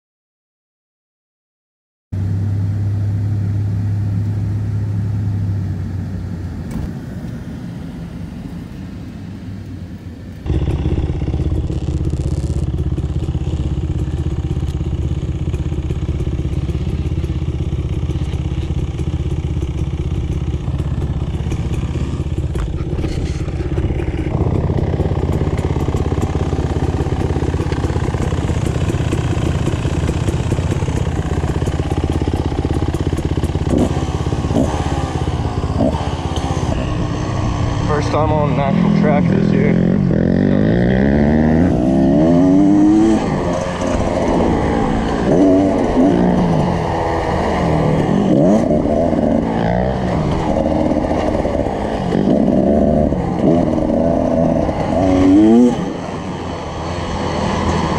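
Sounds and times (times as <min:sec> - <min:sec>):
dirt bike engine idling: 0:02.2 - 0:57.9
pickup truck driving: 0:02.2 - 0:57.9.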